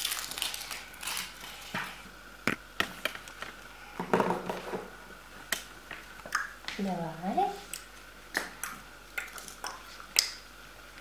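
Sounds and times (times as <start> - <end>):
foil wrapper crinkling: 0.0 - 1.8.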